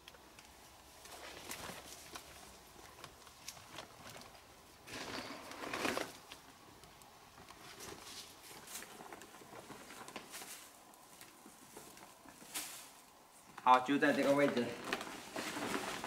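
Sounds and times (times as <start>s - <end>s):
brushing through vegetation: 7.6s - 16.0s.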